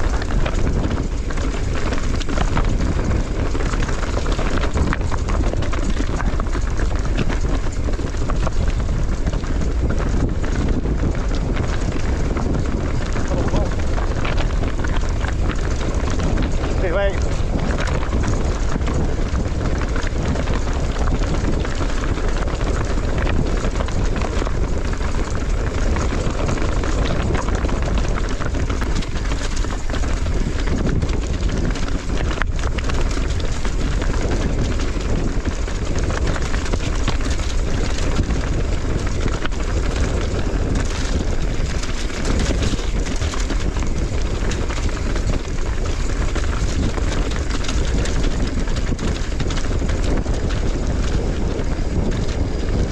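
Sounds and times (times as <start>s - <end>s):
tyres crunching over stones: 0.0s - 52.8s
bike rattling: 0.0s - 52.9s
wind noise on microphone: 0.0s - 52.9s.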